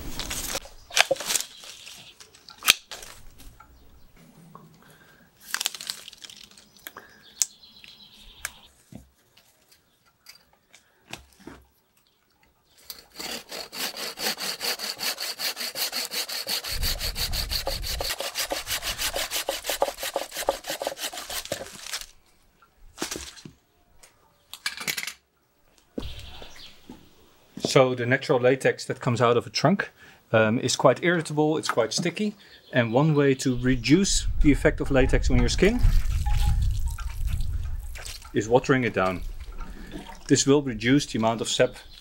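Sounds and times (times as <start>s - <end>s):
leaves and twigs rustling and snapping: 0.0s - 3.7s, 5.4s - 11.4s, 21.2s - 22.3s, 22.9s - 24.6s, 35.8s - 38.4s
hand saw cutting branch: 12.8s - 22.1s.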